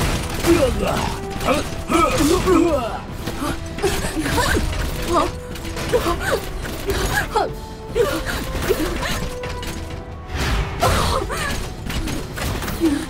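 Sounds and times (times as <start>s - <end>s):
robot limbs clanking and ratcheting: 0.0s - 10.4s, 11.2s - 13.0s.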